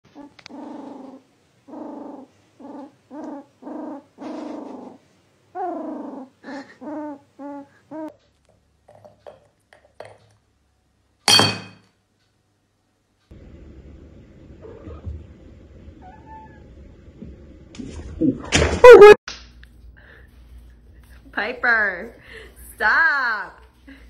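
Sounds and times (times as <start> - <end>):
loud sharp knock with ringing: 11.3 - 11.8.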